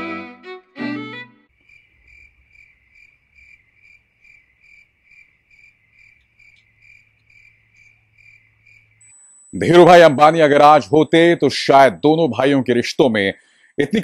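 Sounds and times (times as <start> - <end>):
cricket chirping: 1.5 - 9.7.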